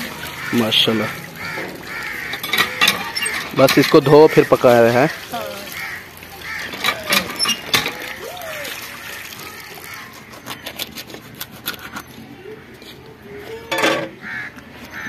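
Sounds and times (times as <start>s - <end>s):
water splashing into metal bowl: 0.0s - 10.4s.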